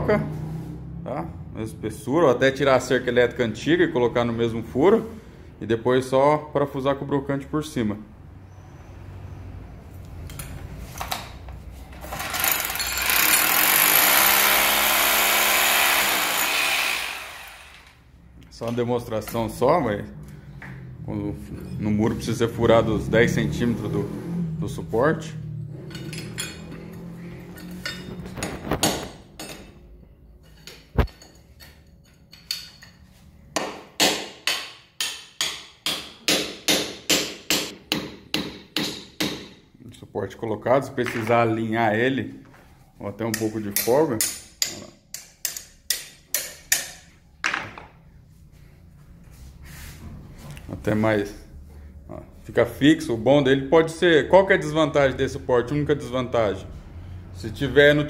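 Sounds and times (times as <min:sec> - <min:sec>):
hammer drill boring into tile: 0:12.1 - 0:18.0.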